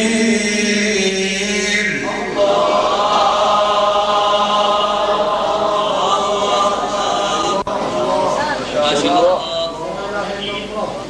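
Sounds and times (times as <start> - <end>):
man chanting: 0.0 - 2.9.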